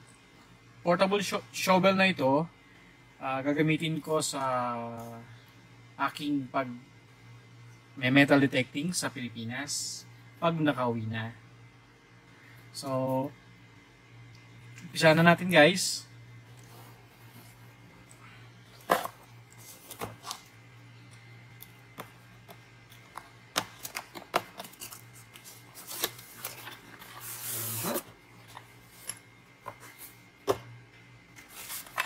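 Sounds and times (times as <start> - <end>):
low steady hum: 0.0 - 32.0
bag sliding out scraping: 27.2 - 28.1.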